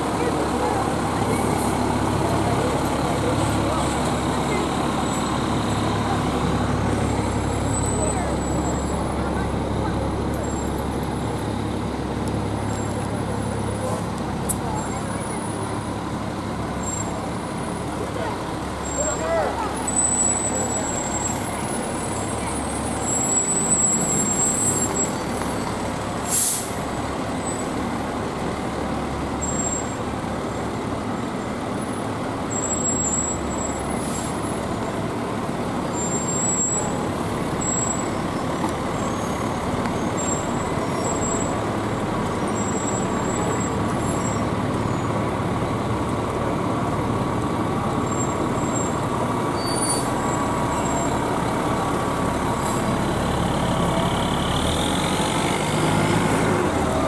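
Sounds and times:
fire truck diesel engines: 0:00.0 - 0:57.0
air brakes hissing: 0:25.9 - 0:26.9.

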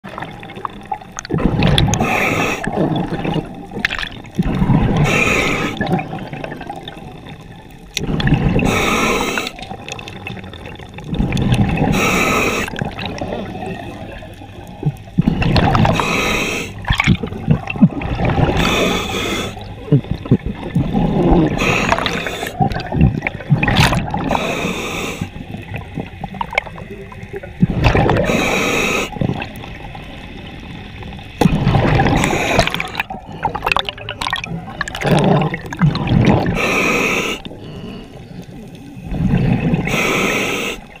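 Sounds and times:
scuba regulator breathing bubbles: 0:01.2 - 0:07.4, 0:08.0 - 0:30.1, 0:31.4 - 0:41.0
regulator hiss: 0:08.6 - 0:09.6, 0:11.8 - 0:12.8, 0:15.8 - 0:16.9, 0:18.6 - 0:19.8, 0:28.2 - 0:31.1, 0:39.8 - 0:41.0.

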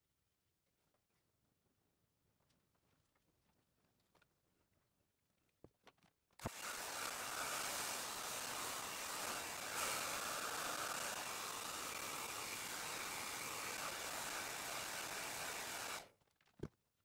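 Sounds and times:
hair dryer blowing: 0:06.4 - 0:16.1.

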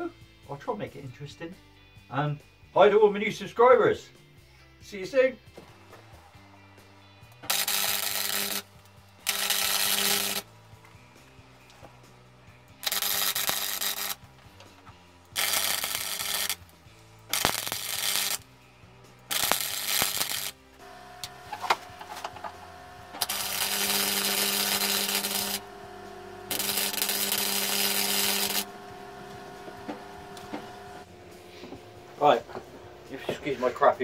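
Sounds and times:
electric arc welding hiss: 0:07.4 - 0:10.6, 0:12.8 - 0:14.4, 0:15.2 - 0:34.0.

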